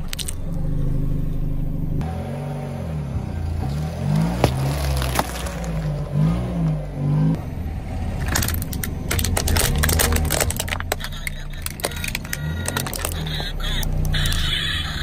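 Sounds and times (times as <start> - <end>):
car engine running: 0.0 - 15.0
tyre crushing toy cars: 3.7 - 6.2, 8.2 - 15.0.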